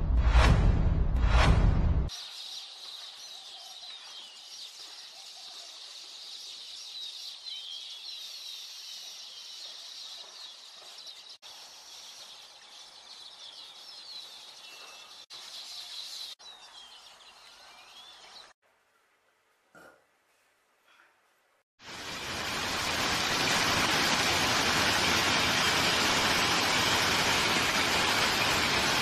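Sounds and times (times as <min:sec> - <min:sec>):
small birds chirping: 0:02.1 - 0:18.6.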